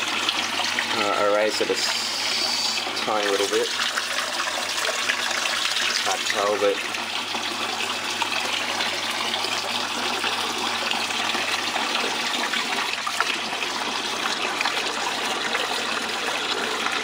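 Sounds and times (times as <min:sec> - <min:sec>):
water running over table: 0:00.0 - 0:17.0.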